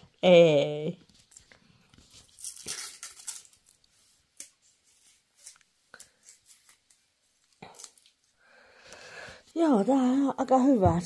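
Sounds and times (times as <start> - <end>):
rustling and crinkling: 1.0 - 8.4.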